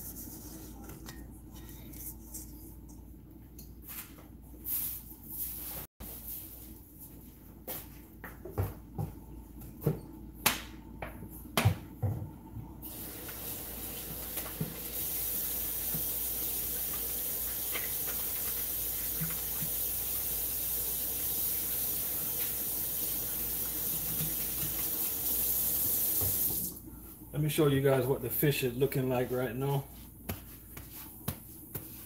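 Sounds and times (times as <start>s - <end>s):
faucet running into sink: 12.9s - 26.7s.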